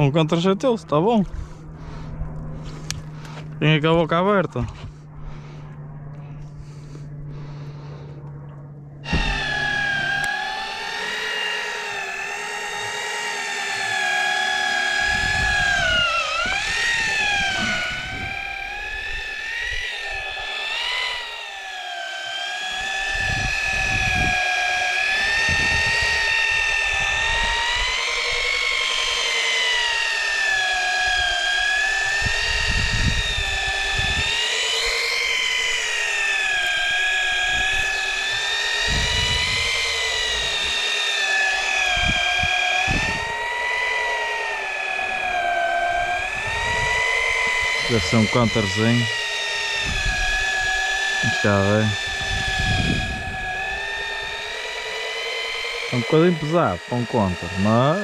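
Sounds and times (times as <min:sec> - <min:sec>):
wind rumbling on microphone: 0:00.0 - 0:21.4, 0:22.7 - 0:58.0
electric fishing reel motor whine: 0:00.0 - 0:58.0.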